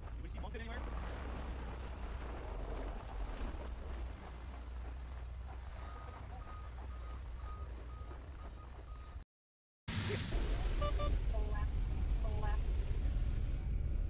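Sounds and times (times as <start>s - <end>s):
reversing alarm beeping: 5.7s - 9.2s, 10.8s - 11.2s
low rumble with hiss: 10.3s - 14.0s.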